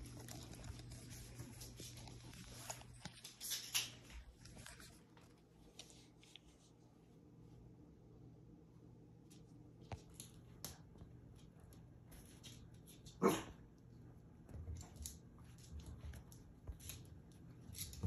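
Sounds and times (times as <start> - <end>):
dog barking: 13.2 - 13.6.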